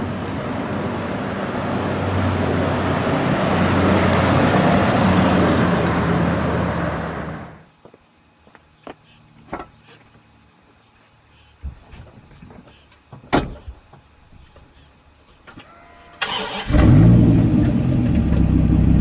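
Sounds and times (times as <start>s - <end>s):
car engine hum: 0.0s - 7.7s, 16.2s - 19.0s
tyre and road noise: 0.0s - 19.0s.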